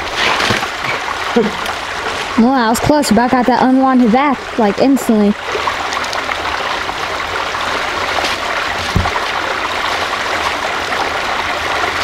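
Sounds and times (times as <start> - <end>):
stream rushing over rocks: 0.0 - 12.0
dull thump: 8.3 - 9.3.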